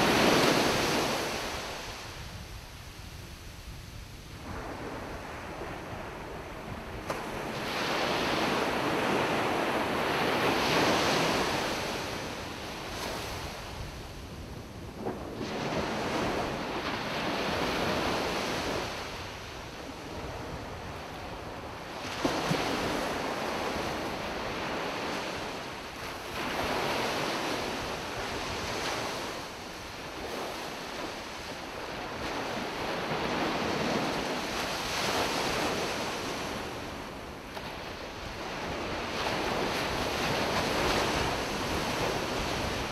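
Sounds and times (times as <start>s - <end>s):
ocean waves breaking: 15.1s - 42.9s.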